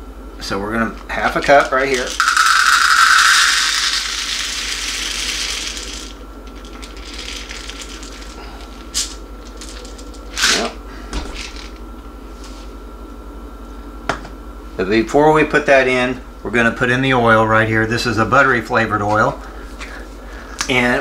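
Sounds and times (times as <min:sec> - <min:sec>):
popcorn kernels pouring: 0:01.1 - 0:10.6.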